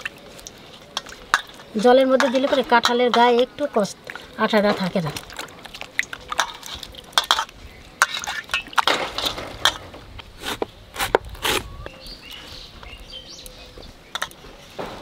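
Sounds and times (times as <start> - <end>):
water splashing and sloshing: 0.0 - 10.2.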